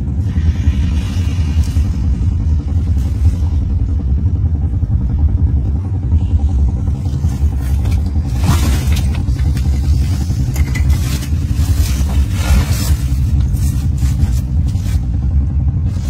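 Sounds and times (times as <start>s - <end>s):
low rumble: 0.0s - 16.0s
carcass scraping over gravel: 10.9s - 15.3s.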